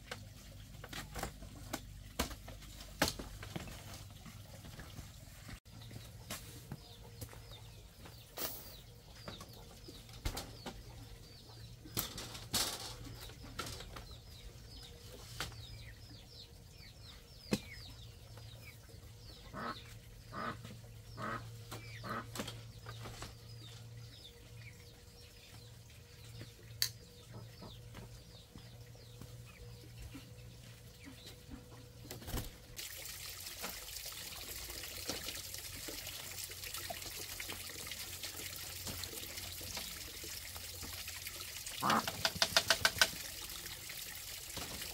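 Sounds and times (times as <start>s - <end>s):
birds chirping: 0.6s - 32.8s
bamboo knocking: 41.9s - 43.2s.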